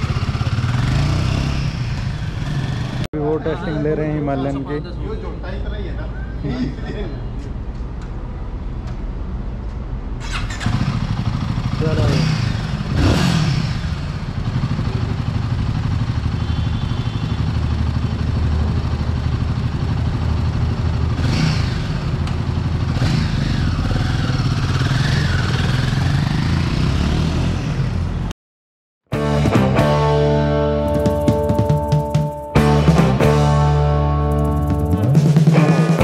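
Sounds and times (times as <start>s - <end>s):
motorcycle engine idling: 0.0s - 3.1s, 10.4s - 13.0s, 13.8s - 26.4s, 30.8s - 32.8s, 34.3s - 35.6s.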